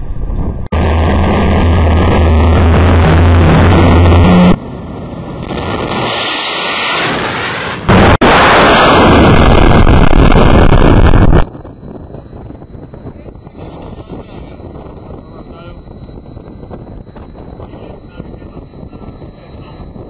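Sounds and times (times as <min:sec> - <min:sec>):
missile launch roar: 0:00.0 - 0:11.4.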